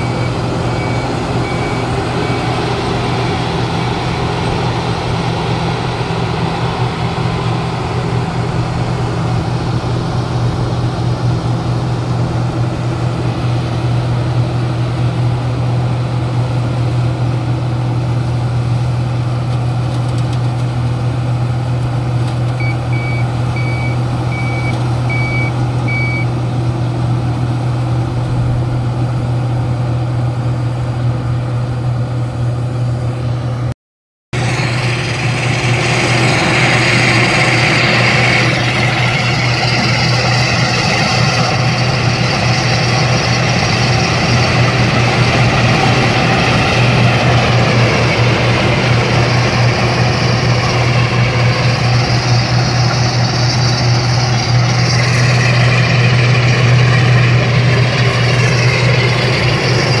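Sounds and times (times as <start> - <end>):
reversing alarm beeps: 0.0 - 2.8, 22.6 - 26.3
diesel engine running: 0.0 - 60.0.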